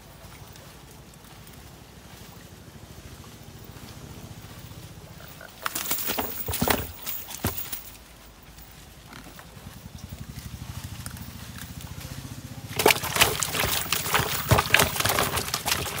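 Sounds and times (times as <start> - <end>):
fish splashing in water: 12.6 - 16.0.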